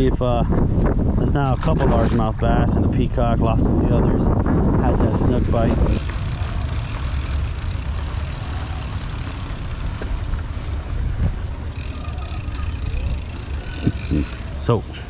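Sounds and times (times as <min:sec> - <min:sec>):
wind buffeting microphone: 0:00.0 - 0:14.8
bike tyres rolling on grass and concrete: 0:04.4 - 0:15.0.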